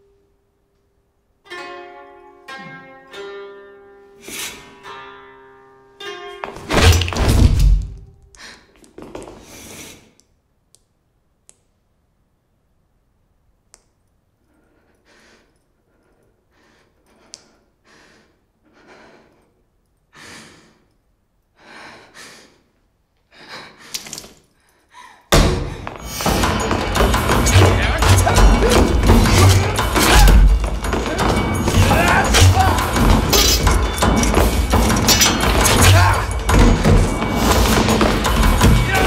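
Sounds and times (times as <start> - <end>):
loud thud: 25.3 - 38.9.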